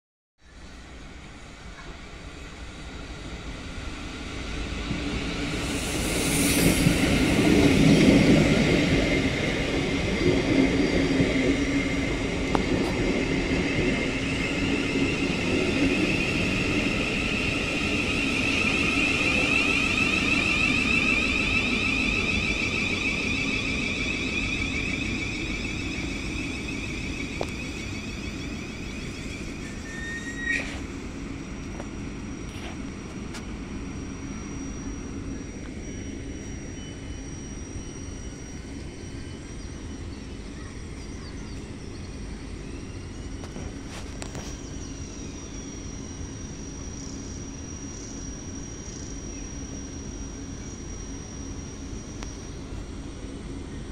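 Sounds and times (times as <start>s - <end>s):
electric traction whine: 0.5s - 53.9s
train wheels rolling: 1.3s - 33.6s
brief brake squeal: 18.3s - 31.0s.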